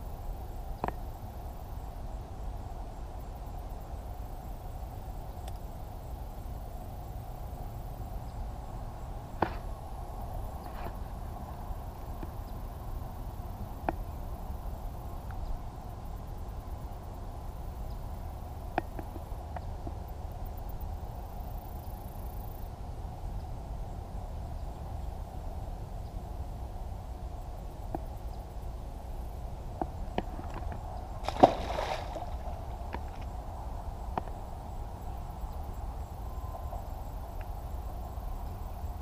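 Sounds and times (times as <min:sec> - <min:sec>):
mid-pitched hiss: 0:00.0 - 0:39.0.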